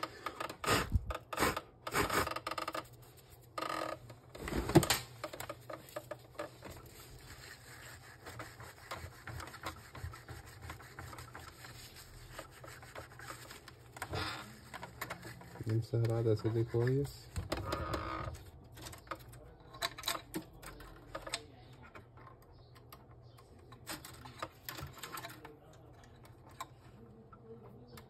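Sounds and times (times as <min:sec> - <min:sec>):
tissue rubbing on plastic: 0:05.8 - 0:17.3.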